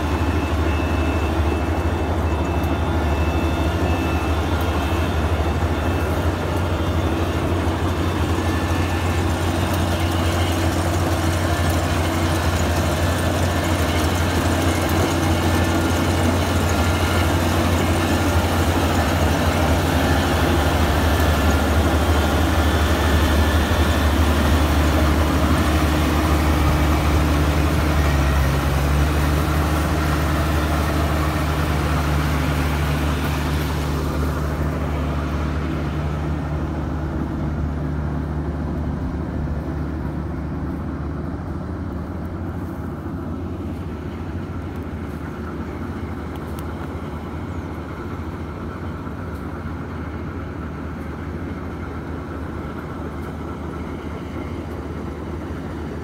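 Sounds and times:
combine harvester engine drone: 0:00.0 - 0:56.0
machinery noise: 0:00.0 - 0:56.0.

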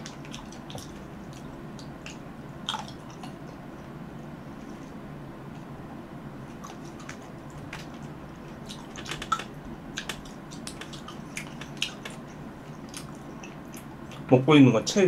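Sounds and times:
low steady hum: 0:00.0 - 0:15.0
chewing cherries: 0:06.5 - 0:14.3.

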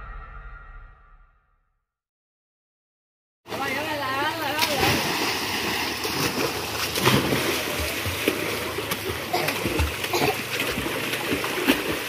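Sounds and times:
water splashing and churning: 0:03.5 - 0:12.0.

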